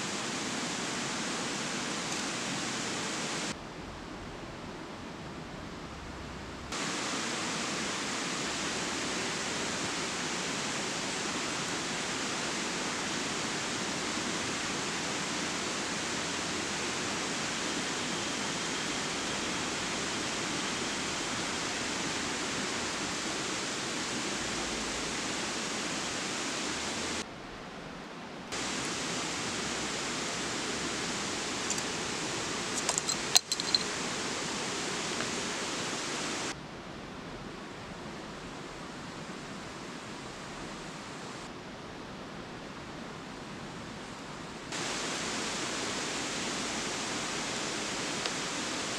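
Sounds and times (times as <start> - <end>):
river rushing over rapids: 0.0 - 3.6, 6.7 - 27.3, 28.5 - 36.6, 37.5 - 48.9
sharp clicks and knocks: 32.8 - 33.9.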